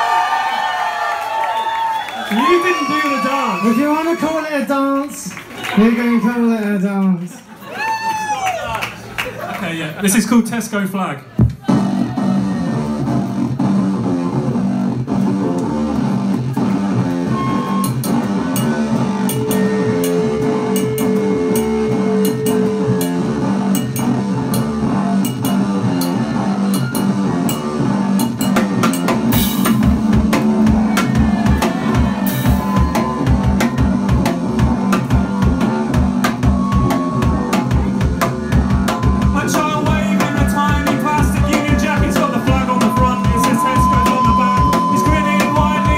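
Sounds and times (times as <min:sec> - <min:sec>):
punk band playing: 0:11.3 - 0:45.9
bass drum hits: 0:27.1 - 0:45.9.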